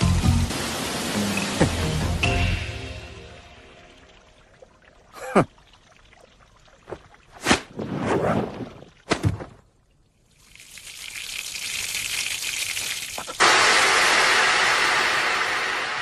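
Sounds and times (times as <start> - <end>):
water gushing: 0.0 - 9.1, 10.0 - 16.0.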